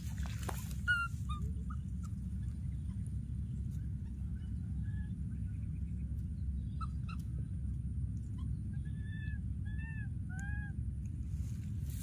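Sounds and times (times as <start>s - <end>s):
steady low rumble: 0.0s - 12.0s
baby monkey calling: 0.6s - 3.2s, 6.7s - 7.5s, 8.3s - 10.8s.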